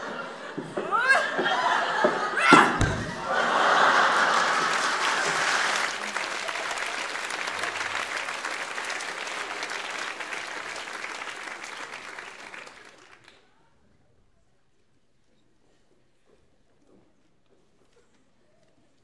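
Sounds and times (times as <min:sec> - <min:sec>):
audience applauding: 0:02.8 - 0:13.4.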